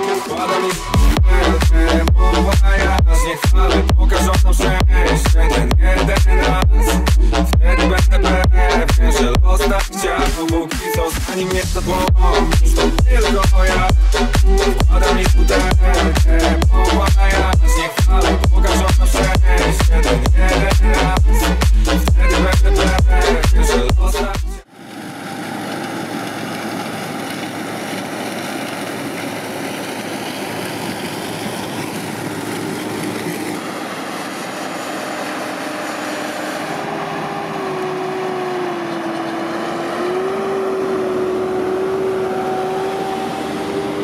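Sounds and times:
tractor engine: 0:00.6 - 0:44.0
combine harvester engine: 0:24.6 - 0:44.0.

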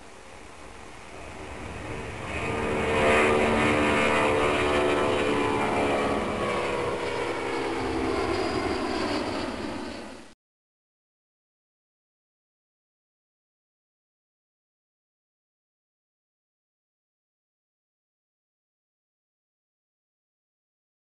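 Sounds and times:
jet engines flying past: 0:00.0 - 0:10.4.

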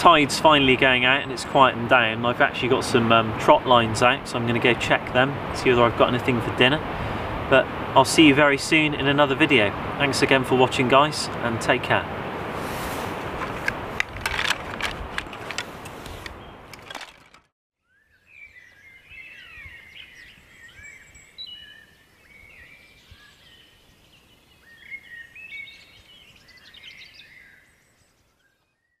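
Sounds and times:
sea surf rushing: 0:00.1 - 0:16.3
woodland birdsong: 0:12.6 - 0:29.0.

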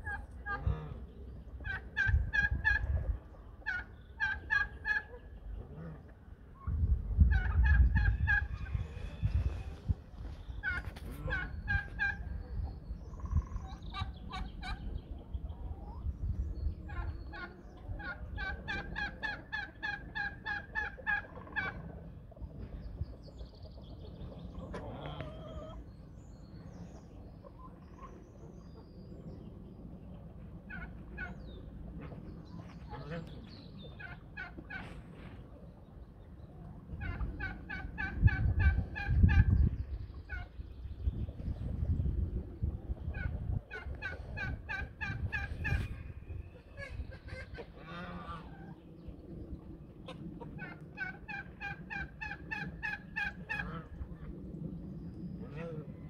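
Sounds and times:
turkey gobbling: 0:01.6 - 0:05.3, 0:07.3 - 0:08.9, 0:10.6 - 0:12.3, 0:13.2 - 0:14.8, 0:16.9 - 0:22.0, 0:24.6 - 0:25.8, 0:30.7 - 0:31.4, 0:33.9 - 0:35.0, 0:37.0 - 0:39.5, 0:43.1 - 0:46.0, 0:50.0 - 0:54.3
poultry calling: 0:10.6 - 0:12.3, 0:24.6 - 0:25.8, 0:46.7 - 0:48.8.

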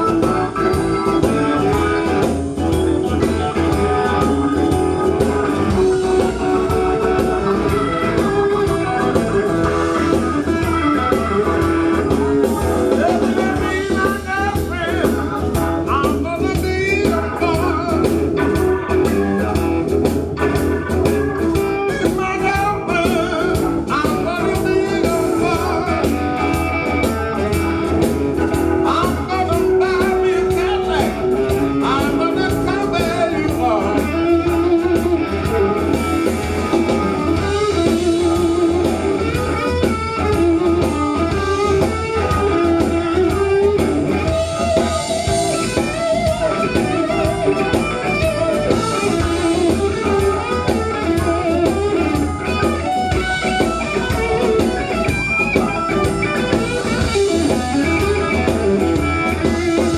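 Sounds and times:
bass line: 0:00.0 - 0:59.9
drums: 0:00.0 - 0:59.9
electric guitar: 0:00.0 - 0:59.9
man singing: 0:07.5 - 0:19.6, 0:21.5 - 0:27.5, 0:28.5 - 0:35.9.

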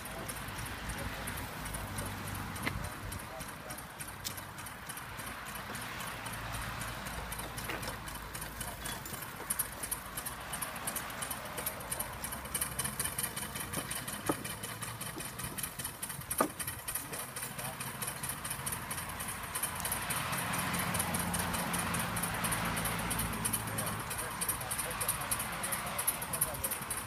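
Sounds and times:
miniature steam crawler clattering: 0:00.0 - 0:27.0
sharp clicks: 0:00.2 - 0:14.9.

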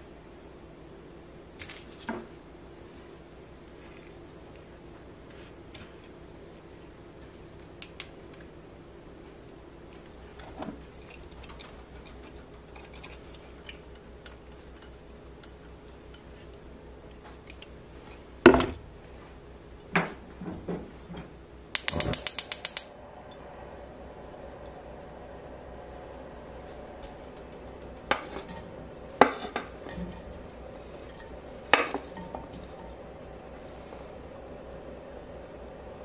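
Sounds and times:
gas burner hissing: 0:21.6 - 0:35.5
gas igniter ticking: 0:21.7 - 0:22.9.

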